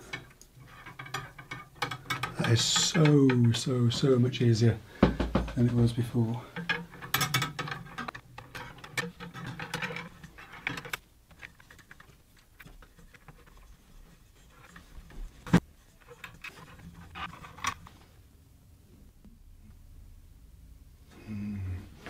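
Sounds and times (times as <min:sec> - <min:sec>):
lead screw rattling and clicking: 0:00.1 - 0:04.0, 0:06.6 - 0:13.3.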